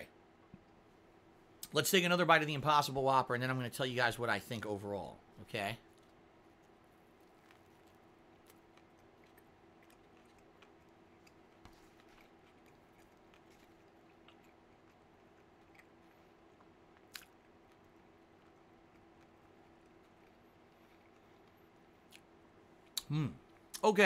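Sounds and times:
low steady hum: 0.0 - 24.0
person chewing food: 5.8 - 23.8.

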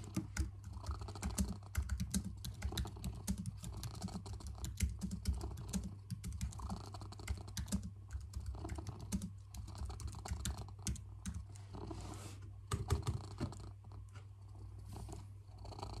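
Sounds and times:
fingers typing on keyboard: 0.0 - 11.5, 12.7 - 13.6
cat purring: 0.0 - 16.0.

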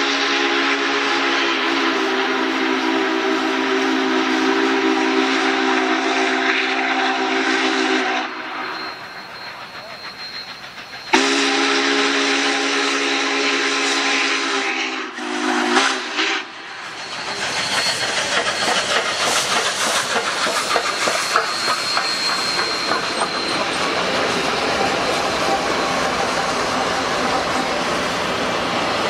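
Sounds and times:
steam locomotive whistle: 0.0 - 28.2
steam hissing: 0.0 - 29.0
train clattering over rails: 8.4 - 13.2, 16.5 - 29.0.

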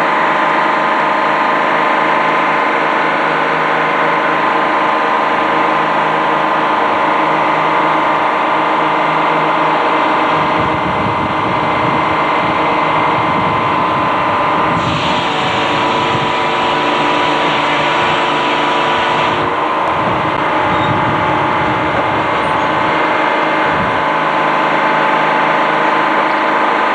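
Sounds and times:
sawmill machinery drone and whine: 0.0 - 26.9
deep rumble: 10.4 - 24.4
harsh hiss: 14.6 - 19.5.

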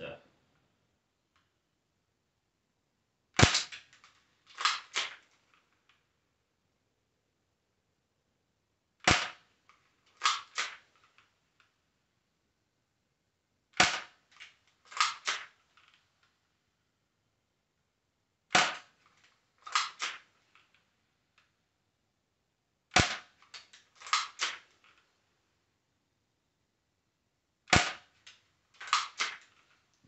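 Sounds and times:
airsoft pistol firing: 3.4 - 3.8, 4.6 - 5.2, 9.0 - 9.4, 10.2 - 10.8, 13.8 - 14.2, 14.9 - 15.6, 18.5 - 18.9, 19.6 - 20.3, 22.9 - 23.4, 24.0 - 24.7, 27.7 - 28.1, 28.8 - 29.4.

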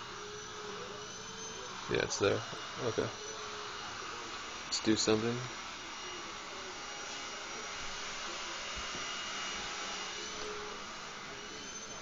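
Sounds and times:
faint high whines: 0.0 - 12.0.

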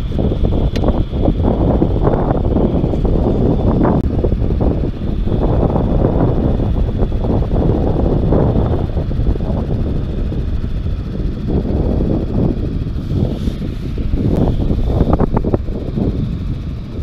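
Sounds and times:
wind buffeting microphone: 0.0 - 17.0.

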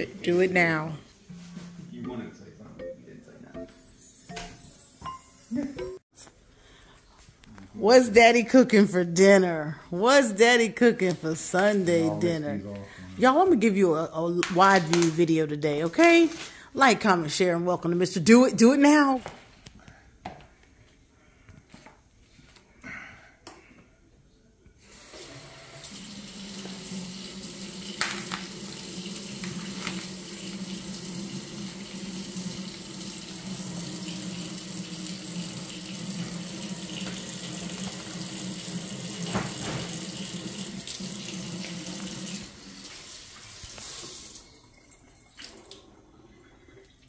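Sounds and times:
faucet running into metal sink: 25.1 - 47.0.

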